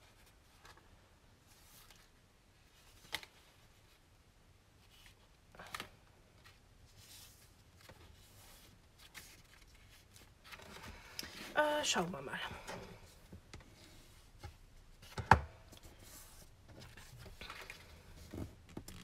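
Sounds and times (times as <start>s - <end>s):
paper rustling: 4.8s - 11.5s.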